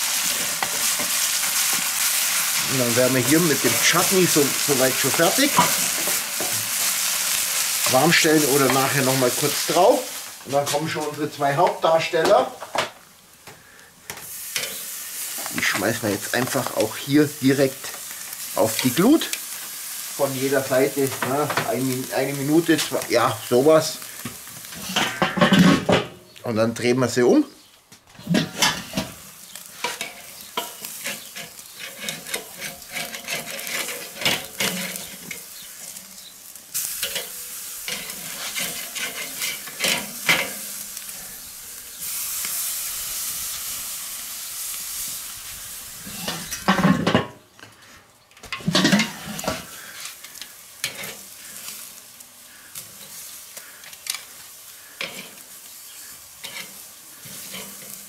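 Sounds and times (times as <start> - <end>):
meat sizzling on a grill: 0.0 - 26.2, 28.2 - 58.0
tongs clicking and scraping: 29.7 - 40.6, 48.5 - 51.8, 54.9 - 55.4, 56.4 - 58.0.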